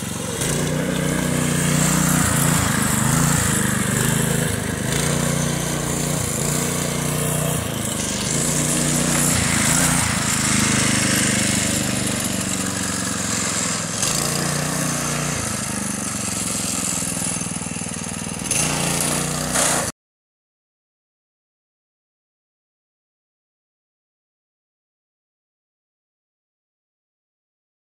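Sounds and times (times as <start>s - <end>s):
go-kart engine revving: 0.0s - 19.9s.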